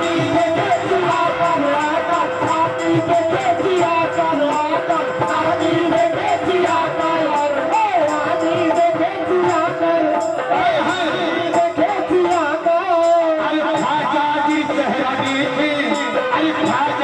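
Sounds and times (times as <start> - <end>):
hand drum beat: 0.0 - 17.0
harmonium playing: 0.0 - 17.0
man singing: 0.0 - 17.0.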